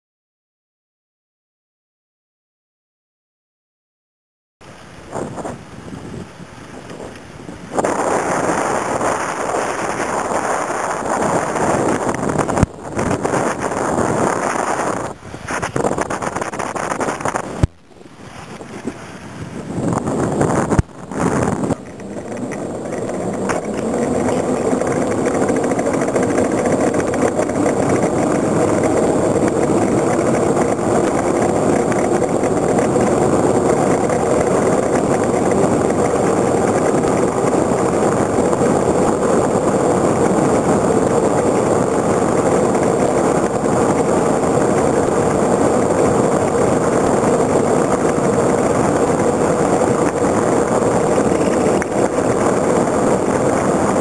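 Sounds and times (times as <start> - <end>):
wheels rolling fast over asphalt: 4.6 - 54.0.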